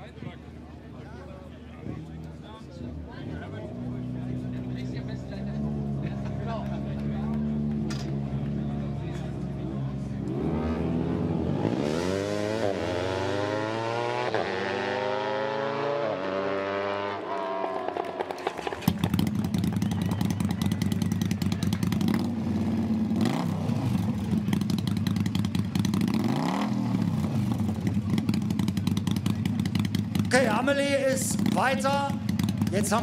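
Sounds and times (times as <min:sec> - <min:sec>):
racing motorcycles accelerating: 0:02.9 - 0:33.0
motorcycle engine idling rattly: 0:17.6 - 0:23.2, 0:23.8 - 0:33.0.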